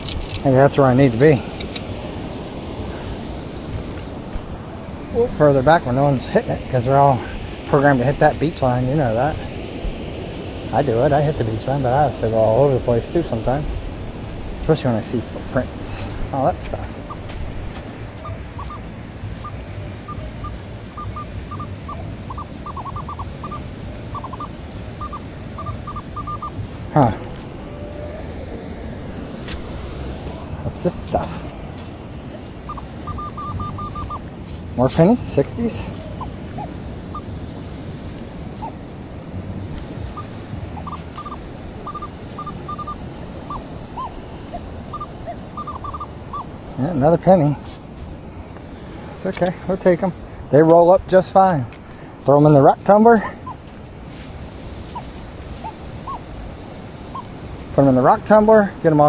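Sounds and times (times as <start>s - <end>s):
steady low rumble: 0.0s - 59.0s
metal detector beeping: 17.0s - 17.3s, 18.2s - 26.8s, 32.5s - 34.3s, 36.0s - 37.3s, 39.8s - 46.5s
metal detector chirps: 17.0s - 17.3s, 18.2s - 26.7s, 32.6s - 34.3s, 36.0s - 37.3s, 39.8s - 46.5s.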